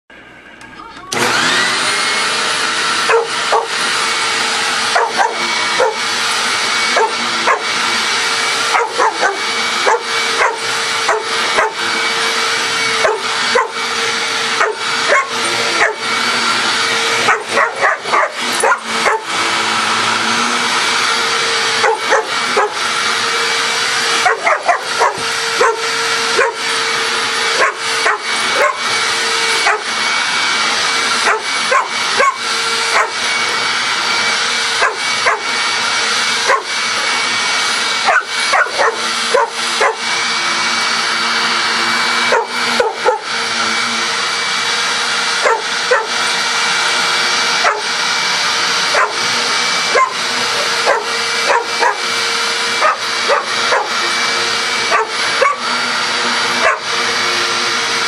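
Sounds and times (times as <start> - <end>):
vacuum cleaner droning: 0.1 - 58.0
dog barking: 3.1 - 3.8, 4.9 - 6.0, 6.9 - 7.6, 8.7 - 11.8, 13.0 - 13.8, 14.6 - 16.0, 17.3 - 19.3, 21.8 - 22.8, 24.2 - 26.6, 27.6 - 28.8, 29.6 - 29.9, 31.2 - 33.2, 34.8 - 35.5, 36.5 - 36.7, 38.0 - 40.0, 42.3 - 43.3, 45.4 - 46.1, 47.6 - 47.9, 48.9 - 49.2, 49.9 - 52.0, 52.8 - 54.0, 54.9 - 55.6, 56.6 - 56.9.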